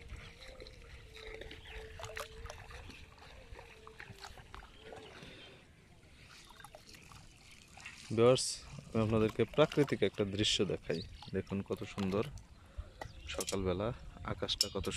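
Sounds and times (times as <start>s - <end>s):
shallow water sloshing: 0.0s - 13.7s.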